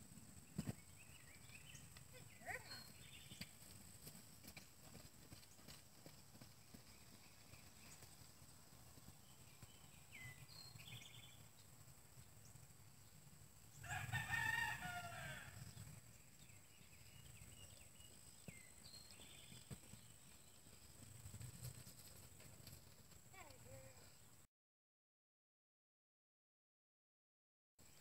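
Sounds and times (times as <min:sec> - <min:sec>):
rooster crowing: 0:13.8 - 0:15.7.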